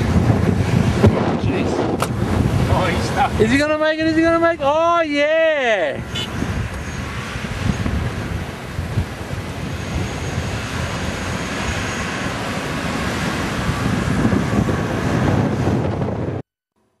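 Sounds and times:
vehicle engine rumble: 0.0s - 5.0s, 5.9s - 16.4s
wind buffeting microphone: 0.0s - 16.4s.

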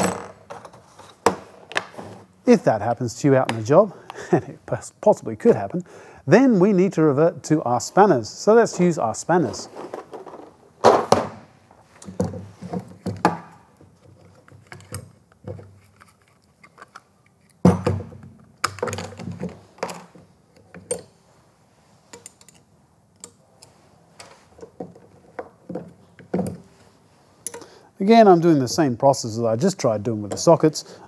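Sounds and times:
plastic tool case thunking: 9.6s - 11.5s, 17.6s - 20.1s
small metallic clicks: 22.1s - 24.4s.

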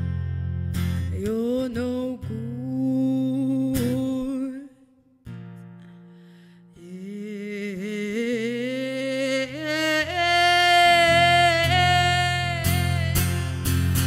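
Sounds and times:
acoustic guitar strumming: 0.0s - 14.0s
woman singing long notes: 6.8s - 13.4s.

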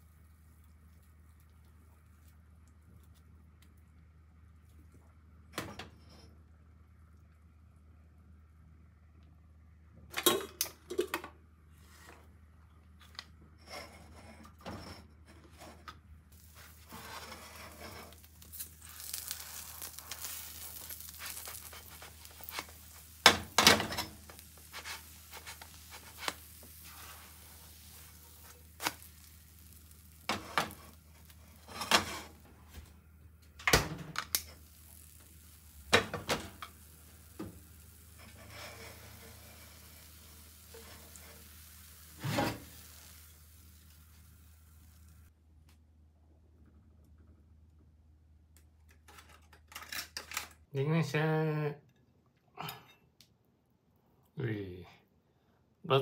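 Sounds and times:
faint pancake sizzle: 0.0s - 8.6s, 13.6s - 45.4s.

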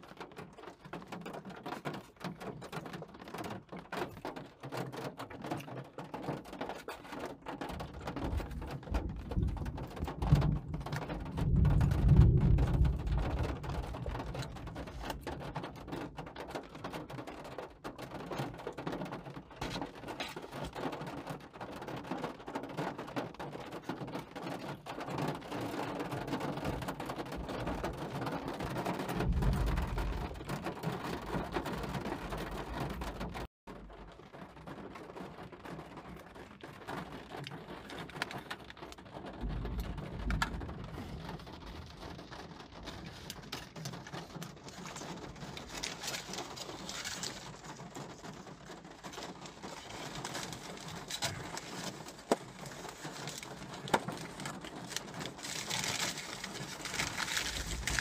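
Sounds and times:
rain on car windshield: 0.0s - 58.0s
thunder rumbling: 7.9s - 15.9s, 26.7s - 33.5s, 39.1s - 58.0s.

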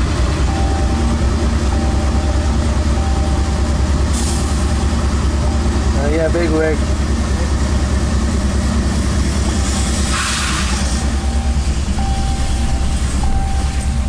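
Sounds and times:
freight train rumbling past: 0.0s - 14.0s
truck road noise: 0.0s - 14.0s
short hiss burst: 10.0s - 11.0s.

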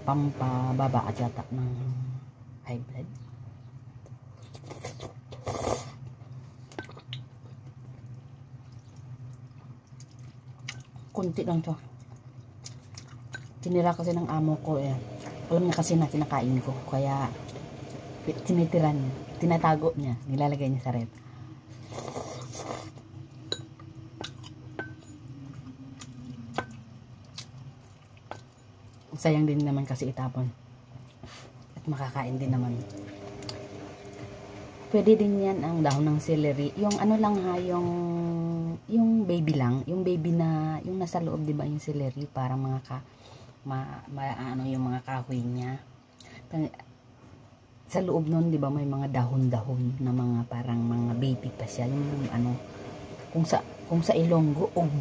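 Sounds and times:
steady low hum: 0.0s - 55.0s
person slurping noodles: 4.7s - 6.0s, 21.8s - 23.0s
wet chewing and mouth clicks: 6.7s - 11.2s, 11.8s - 13.6s, 25.5s - 29.1s
low hum: 13.7s - 27.8s, 31.8s - 39.2s.

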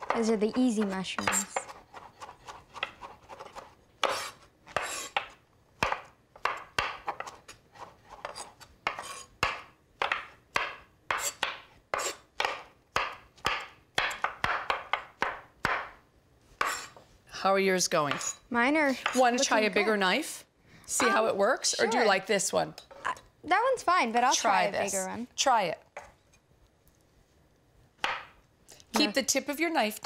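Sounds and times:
knives chopping on wooden board: 0.0s - 16.0s.

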